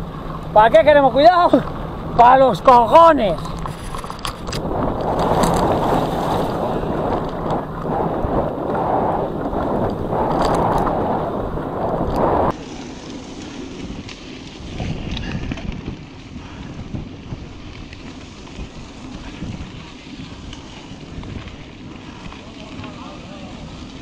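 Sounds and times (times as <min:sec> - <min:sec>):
wind buffeting microphone: 0:00.0 - 0:24.0
tyre rumble on dirt: 0:04.6 - 0:12.9.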